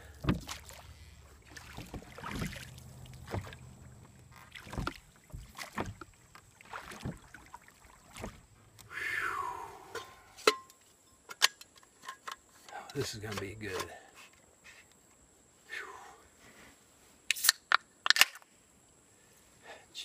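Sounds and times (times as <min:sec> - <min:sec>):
hollow knocks against canoe hull: 0:00.2 - 0:00.9, 0:01.6 - 0:03.8, 0:04.4 - 0:07.5, 0:08.1 - 0:08.4.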